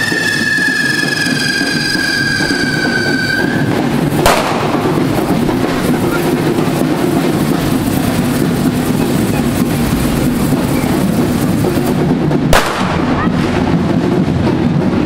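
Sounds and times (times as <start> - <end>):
firework whistle: 0.0 - 13.5
crackling hiss of fireworks: 0.0 - 15.0
sharp firework bang: 1.5 - 8.6, 9.5 - 14.8.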